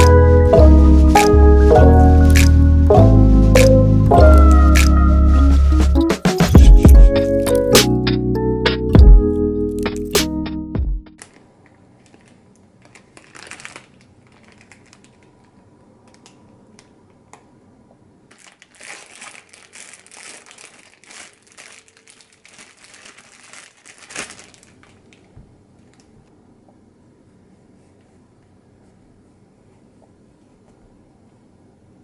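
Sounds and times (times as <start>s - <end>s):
plastic bag crinkling: 11.2s - 16.2s, 18.3s - 26.1s.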